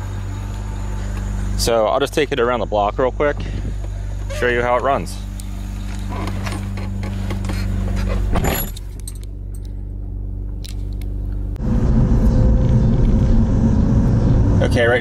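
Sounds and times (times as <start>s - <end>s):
car engine idling: 0.0s - 15.0s
car door shutting: 5.7s - 9.2s
clicks and rattles inside car: 5.8s - 9.7s.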